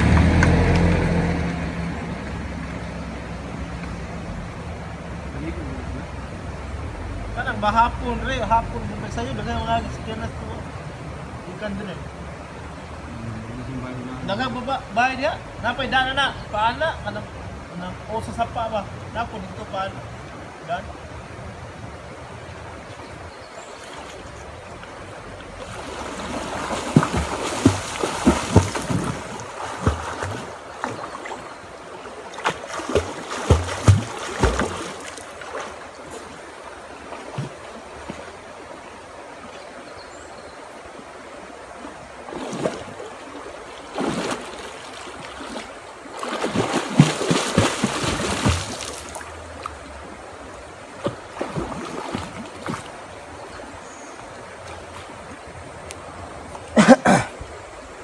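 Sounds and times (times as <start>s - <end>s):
stream flowing: 0.0s - 58.0s
water splashing: 21.8s - 57.0s.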